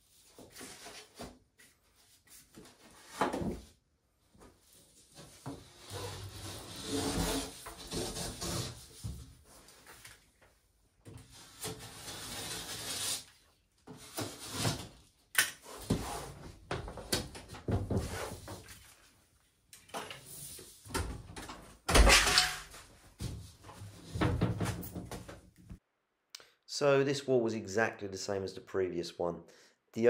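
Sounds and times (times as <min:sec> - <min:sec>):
plasterboard scraping and knocking: 0:05.2 - 0:09.4, 0:15.8 - 0:18.6, 0:23.2 - 0:25.4.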